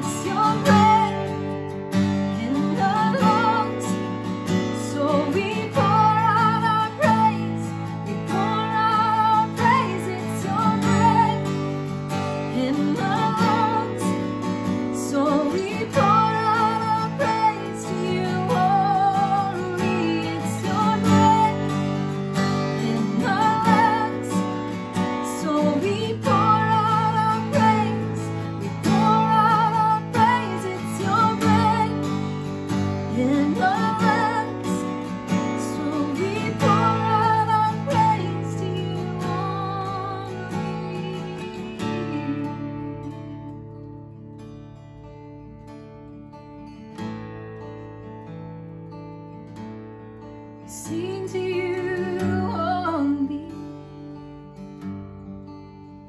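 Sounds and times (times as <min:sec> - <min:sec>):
woman singing: 0:00.0 - 0:44.5, 0:50.6 - 0:55.0
strummed acoustic guitar: 0:00.0 - 0:56.0.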